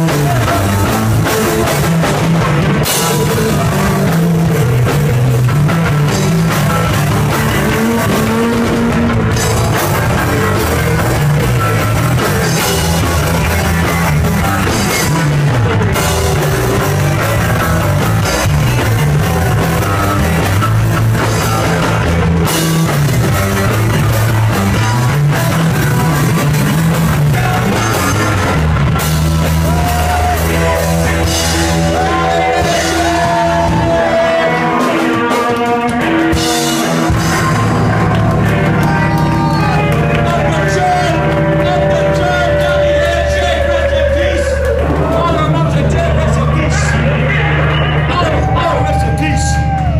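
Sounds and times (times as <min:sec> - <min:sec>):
loud rock band playing: 0:00.0 - 0:49.9
sustained electric guitar notes: 0:00.0 - 0:49.9.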